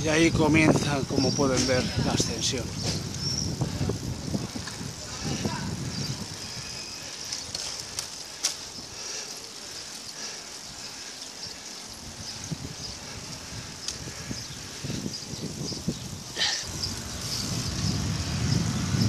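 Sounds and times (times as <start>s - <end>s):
bicycle tyres rolling hiss: 0.0s - 19.0s
sharp bicycle clicks: 6.3s - 9.2s, 9.8s - 14.8s.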